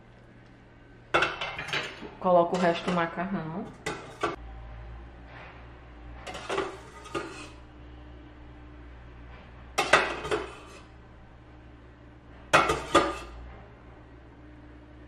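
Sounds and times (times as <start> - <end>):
metal utensils clinking on pot: 1.2 - 4.4, 6.3 - 7.6, 9.8 - 10.8, 12.6 - 13.3.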